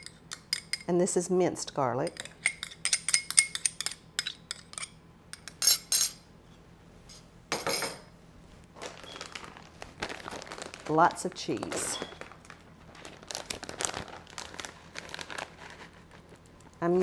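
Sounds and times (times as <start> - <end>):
metal spoon clinking on glass: 2.1 - 6.2.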